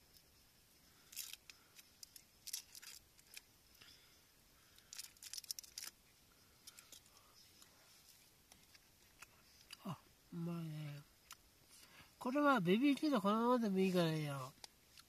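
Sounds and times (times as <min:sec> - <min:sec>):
wrapper crinkling and tearing: 0:01.0 - 0:03.5, 0:04.8 - 0:06.0.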